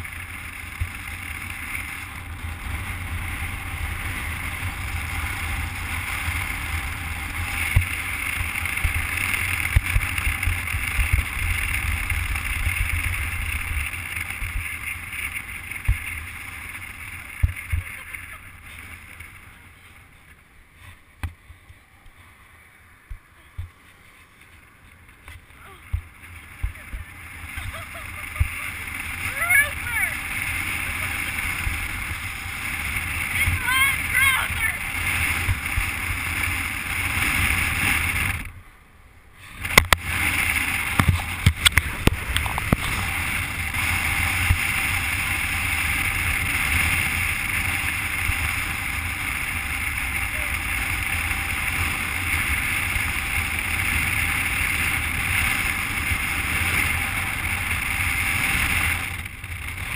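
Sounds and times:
road noise rumble: 0.0 - 59.9
wind rushing on microphone: 39.5 - 59.9.

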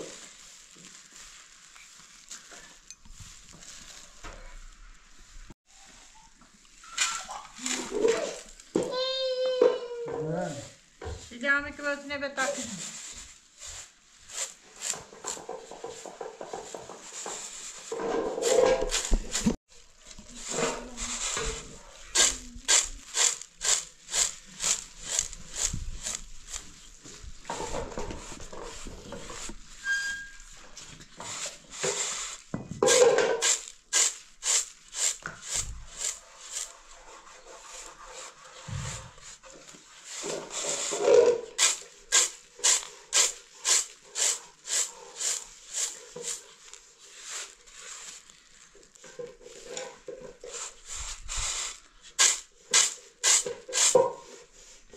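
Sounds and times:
grain swishing: 12.4 - 49.0, 50.5 - 54.8
grain rasping on metal tray: 31.2 - 38.8, 39.7 - 47.9.

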